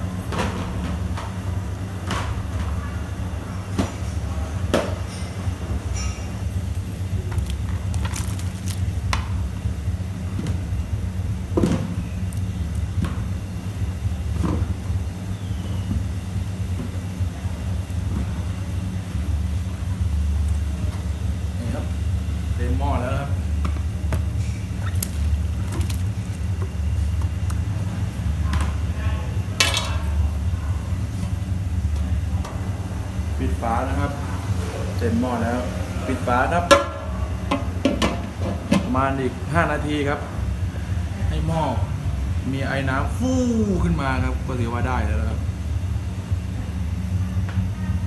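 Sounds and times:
pot boiling rumble: 5.4 - 41.1.

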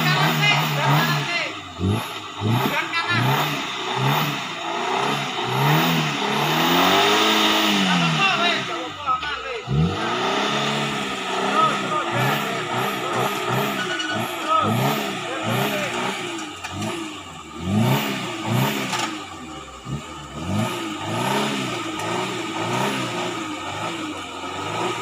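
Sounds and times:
car engine revving: 0.0 - 25.0.

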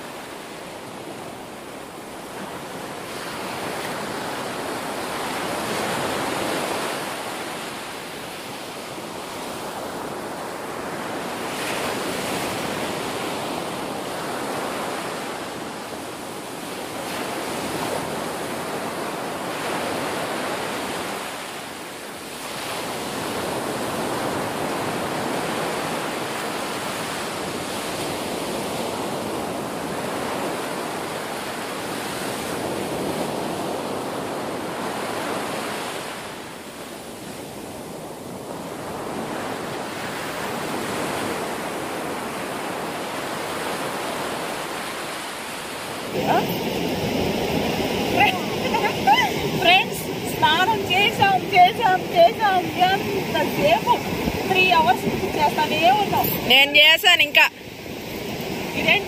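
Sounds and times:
waves breaking: 0.0 - 59.0.

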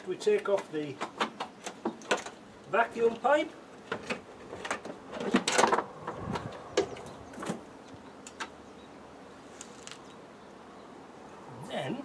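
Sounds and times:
vacuum pipe clicks and knocks: 0.4 - 2.4.

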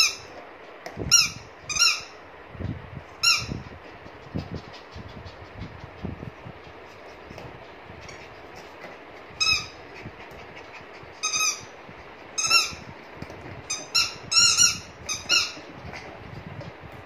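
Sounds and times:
squeaky dog toy squeaking: 1.1 - 2.1, 3.2 - 3.5, 9.4 - 9.8, 11.2 - 11.7, 12.4 - 12.8, 13.7 - 15.6.

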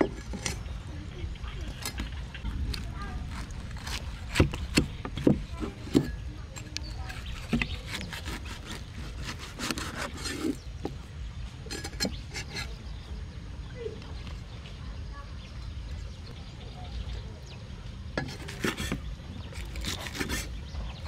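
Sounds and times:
cleaver cutting on wooden board: 3.2 - 11.0, 11.7 - 12.8, 18.2 - 20.6.

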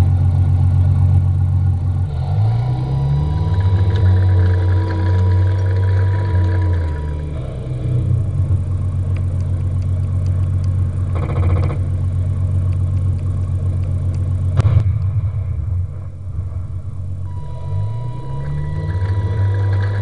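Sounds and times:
simulated tank engine idling: 0.0 - 20.0
sharp bang: 14.6 - 18.7.

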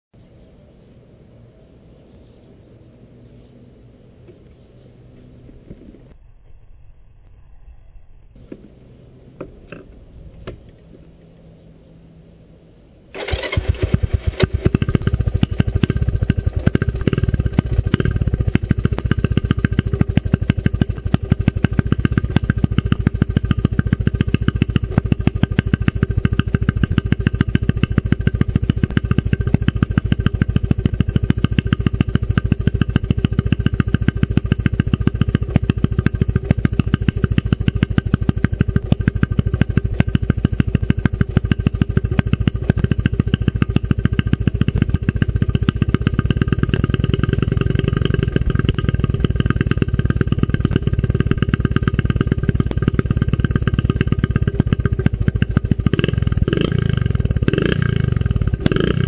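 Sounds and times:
engine starting and idling: 13.1 - 57.5.

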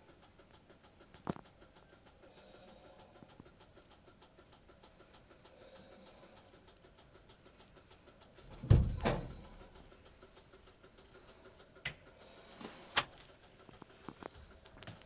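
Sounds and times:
dull thumps: 8.5 - 9.5
short knocks: 8.6 - 9.4.

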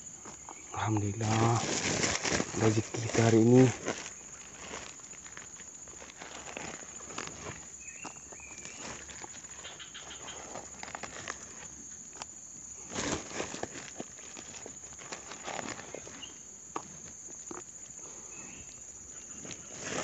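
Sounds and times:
plastic sack rustling: 0.8 - 11.8, 12.8 - 16.4.

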